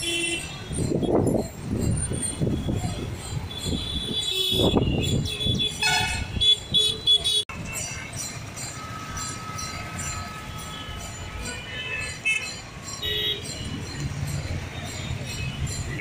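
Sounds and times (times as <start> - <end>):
traffic engines passing: 0.0 - 16.0
vehicle horn toots: 3.6 - 7.4.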